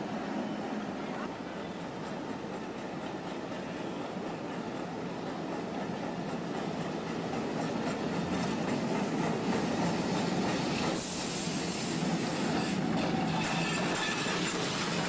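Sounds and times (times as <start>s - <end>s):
streetcar wheels rumbling on rails: 0.0s - 15.0s
burst of hiss: 10.8s - 12.8s.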